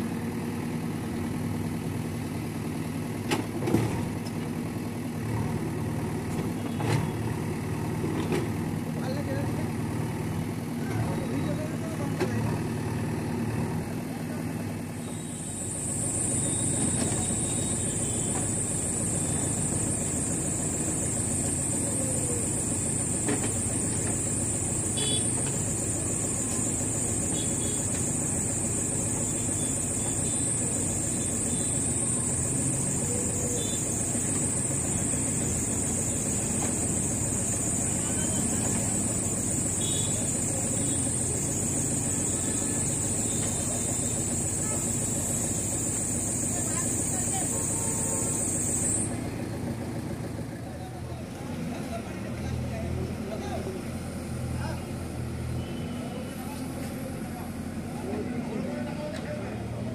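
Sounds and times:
diesel engines running: 0.0s - 59.9s
high-pitched hiss: 15.4s - 49.1s.

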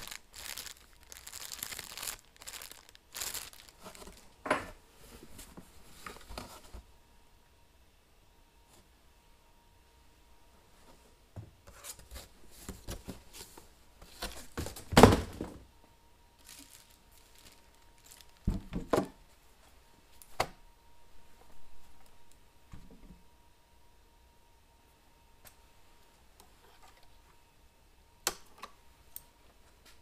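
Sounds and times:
packaging rustling and crinkling: 0.0s - 4.4s, 11.9s - 15.5s, 16.4s - 19.0s.

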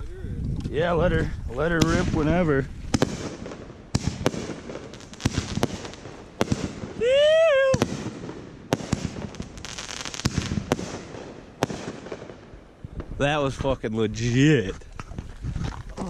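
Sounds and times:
firework shells bursting: 2.9s - 7.1s
person whooping: 7.0s - 7.9s.

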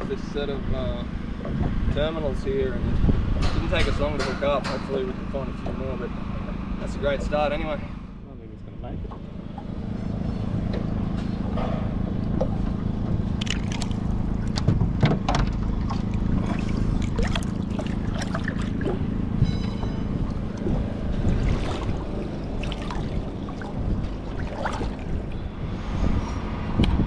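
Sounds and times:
wind on the microphone: 0.0s - 4.7s, 14.1s - 27.0s
steady low hum: 0.0s - 27.0s
water splashing and sloshing: 9.1s - 26.8s.

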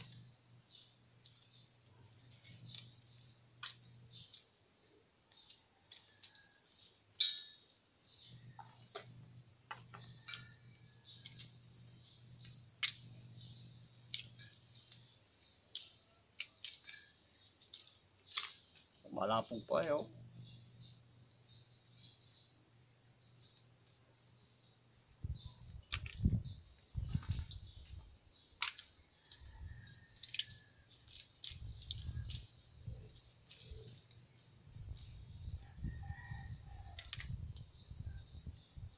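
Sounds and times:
birds chirping faintly: 0.0s - 38.9s
food clicking and snapping: 0.8s - 4.6s, 5.2s - 7.6s, 9.7s - 11.6s, 12.3s - 13.1s, 14.0s - 19.0s, 27.5s - 35.1s.

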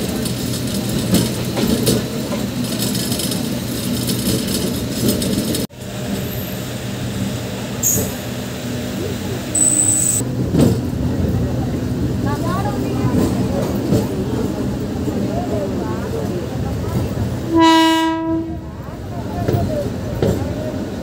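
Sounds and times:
wheel and rail clatter: 0.0s - 6.6s, 10.2s - 17.4s
short high-pitched squeals: 9.6s - 10.2s.

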